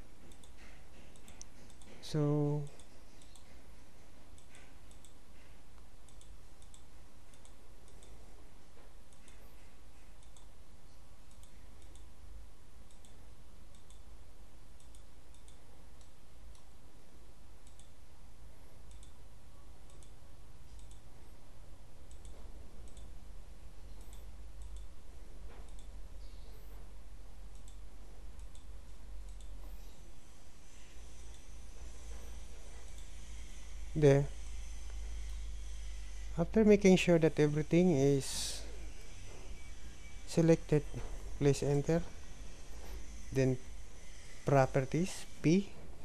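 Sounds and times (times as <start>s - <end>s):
steady low hum: 0.0s - 46.0s
computer mouse clicking: 0.2s - 2.0s, 2.6s - 3.6s, 4.3s - 8.2s, 9.1s - 10.6s, 11.2s - 12.1s, 12.8s - 14.1s, 14.8s - 16.7s, 17.6s - 18.0s, 18.8s - 19.2s, 19.8s - 21.1s, 22.1s - 23.2s, 23.9s - 25.0s, 25.6s - 26.4s, 27.5s - 29.9s.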